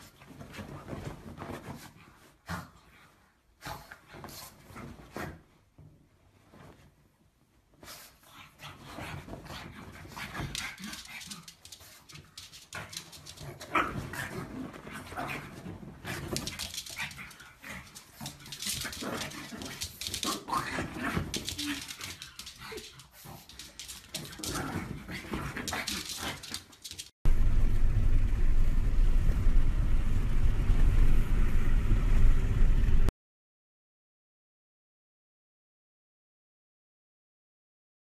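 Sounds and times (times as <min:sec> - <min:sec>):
steady low rumble: 0:27.3 - 0:33.1.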